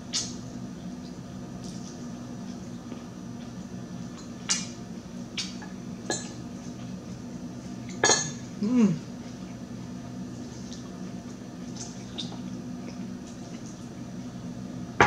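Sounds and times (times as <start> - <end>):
person humming: 8.6 - 9.1.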